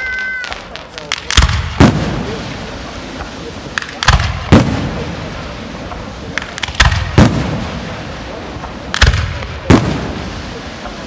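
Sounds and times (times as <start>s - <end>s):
fireworks bangs: 0.0s - 11.0s
small firework pops: 0.2s - 5.1s, 5.9s - 7.8s, 8.6s - 10.2s.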